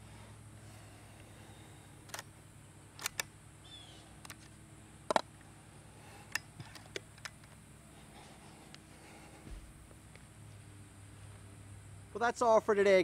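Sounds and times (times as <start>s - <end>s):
air rifle mechanical clicks: 2.0s - 3.4s, 4.2s - 5.5s, 6.2s - 7.6s
bird chirping: 3.6s - 4.1s.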